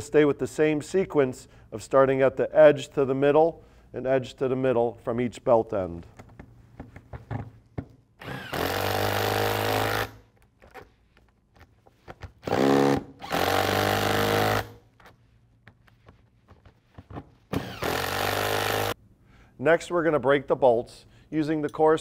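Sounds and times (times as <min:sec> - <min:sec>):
power tool tightening nuts: 0:08.2 - 0:10.2, 0:12.4 - 0:14.8, 0:17.5 - 0:19.0.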